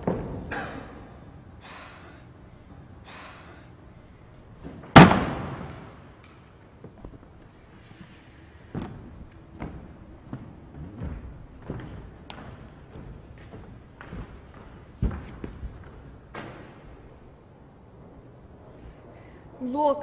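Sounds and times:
loud slam: 4.9 - 6.0.

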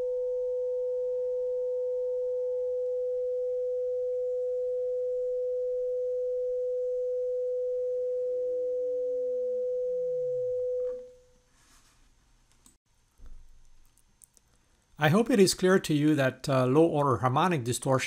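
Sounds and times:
sine tone sliding down in pitch: 0.0 - 11.1
steady sine test tone: 0.0 - 11.5
faint clicks: 12.5 - 14.9.

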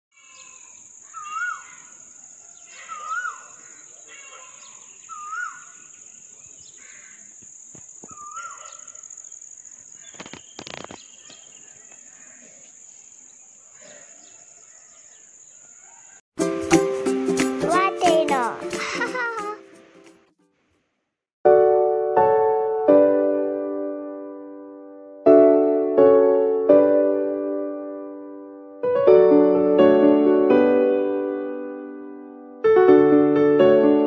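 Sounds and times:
insects droning: 0.2 - 16.2
bird whistled call: 4.6 - 5.7
brief rustle: 10.0 - 12.0.

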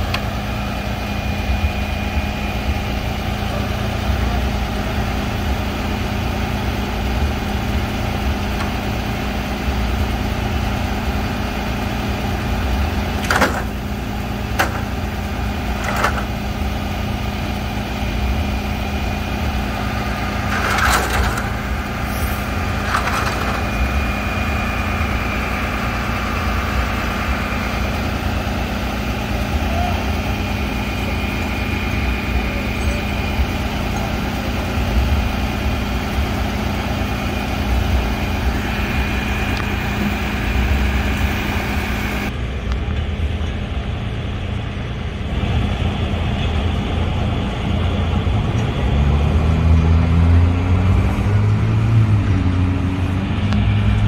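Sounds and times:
truck engine idling: 0.0 - 54.0
metal knocks and clanks: 13.2 - 13.8, 14.5 - 15.0, 15.7 - 16.4, 20.4 - 21.7, 22.8 - 23.8.

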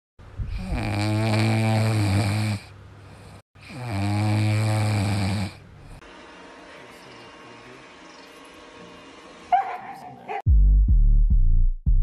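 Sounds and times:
puppy snoring: 0.4 - 6.0.

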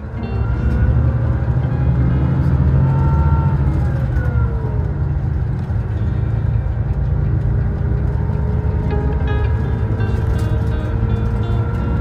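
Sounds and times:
bus engine and road rumble: 0.0 - 12.0.

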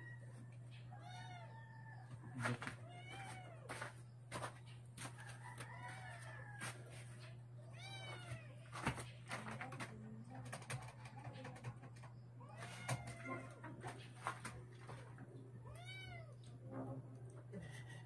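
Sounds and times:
cat meowing: 0.9 - 2.0, 2.8 - 3.8, 7.6 - 8.7, 12.4 - 13.6, 15.6 - 16.6.

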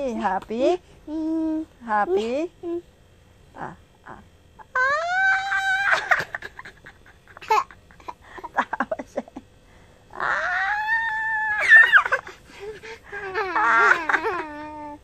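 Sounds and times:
baby squealing: 4.7 - 6.2, 10.2 - 12.2
baby laughing: 4.8 - 8.9, 11.6 - 15.0.

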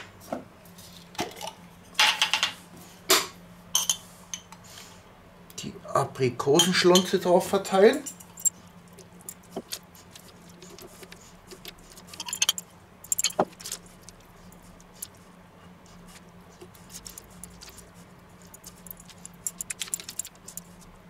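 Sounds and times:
faint steady hum: 0.0 - 21.0
pastry brush dabbing jam: 8.9 - 21.0.

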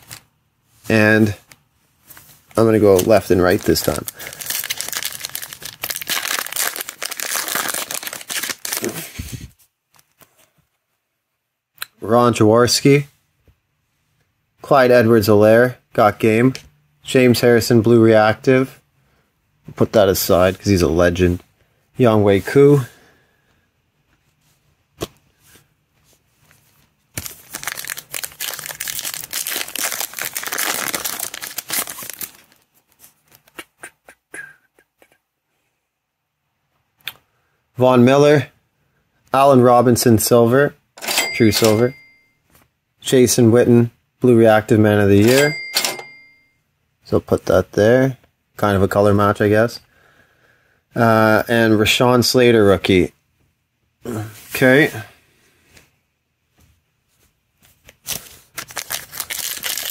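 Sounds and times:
cards handling: 2.2 - 9.0, 26.4 - 33.6, 57.6 - 59.9
plastic wrapper tearing and crinkling: 2.9 - 9.1, 27.2 - 33.6, 57.9 - 59.9.

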